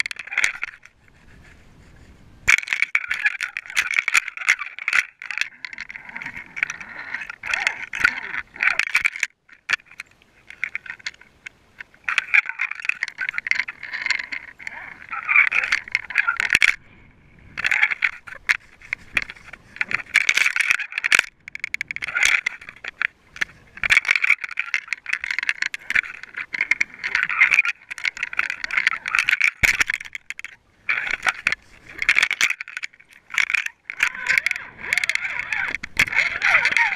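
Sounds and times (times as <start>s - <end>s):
underwater rattling and clicking: 0.0s - 16.8s, 17.5s - 36.9s.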